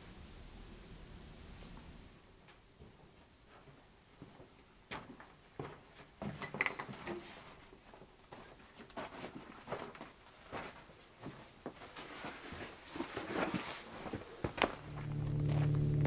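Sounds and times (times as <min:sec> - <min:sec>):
footsteps on grit: 0:07.9 - 0:16.0
steady low hum: 0:14.7 - 0:16.0.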